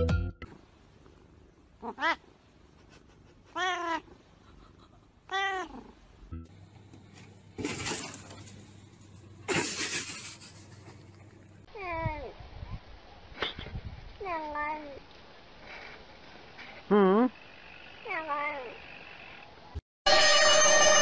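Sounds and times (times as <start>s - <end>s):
cat meowing: 1.8s - 2.2s, 3.5s - 4.1s, 5.3s - 5.9s.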